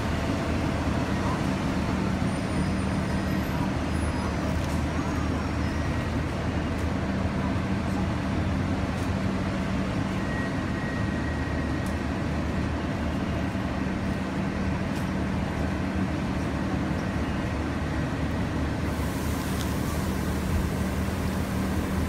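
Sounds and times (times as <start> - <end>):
bus engine idling: 0.0 - 22.0
high hiss: 18.9 - 22.0.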